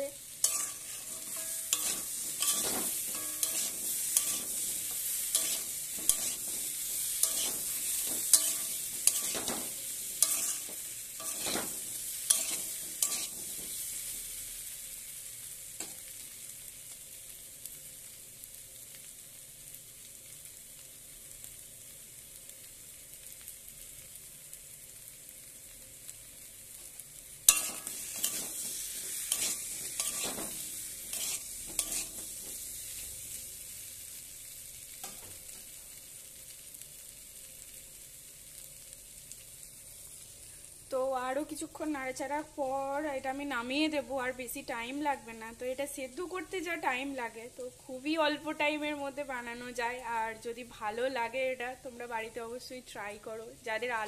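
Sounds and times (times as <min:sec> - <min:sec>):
oil sizzling: 0:00.0 - 0:54.0
spatula scraping pan: 0:00.4 - 0:13.8, 0:27.5 - 0:32.6.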